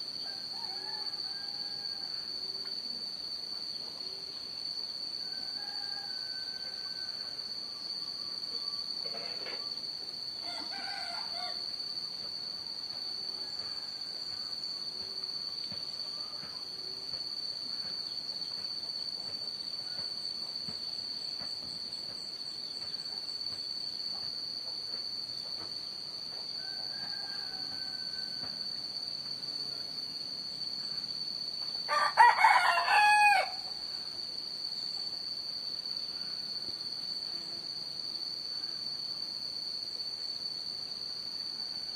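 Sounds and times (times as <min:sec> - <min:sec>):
insects droning: 0:00.0 - 0:41.9
rooster crowing: 0:00.2 - 0:02.5, 0:05.2 - 0:07.6, 0:10.4 - 0:11.8, 0:13.1 - 0:14.5, 0:26.5 - 0:28.8, 0:31.9 - 0:33.8.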